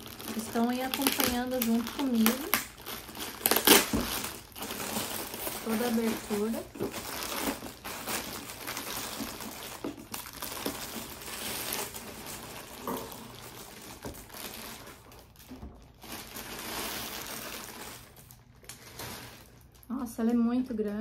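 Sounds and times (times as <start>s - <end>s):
plastic bag rustling: 0.0s - 21.0s.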